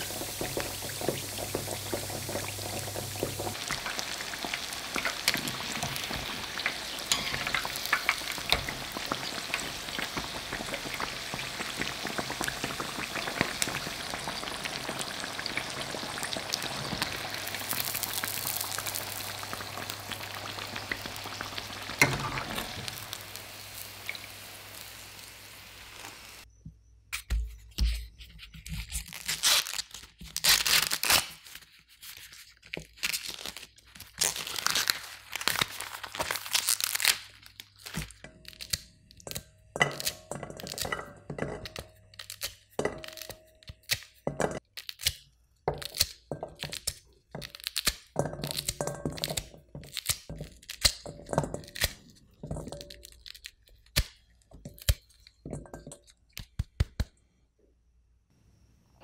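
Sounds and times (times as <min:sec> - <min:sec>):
kernels ticking into metal pot: 0:00.0 - 0:24.8, 0:38.2 - 0:45.1, 0:45.7 - 0:57.0
corn kernels cracking off: 0:00.0 - 0:26.5, 0:29.0 - 0:31.6, 0:32.7 - 0:57.2
corn husk ripping: 0:28.9 - 0:39.4, 0:42.1 - 0:45.2, 0:45.8 - 0:51.0.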